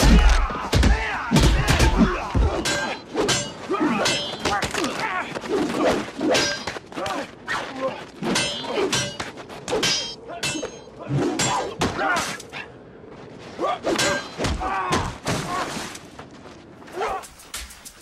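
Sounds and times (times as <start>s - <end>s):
swords clashing: 0.0s - 7.3s, 8.2s - 12.5s, 13.9s - 15.6s.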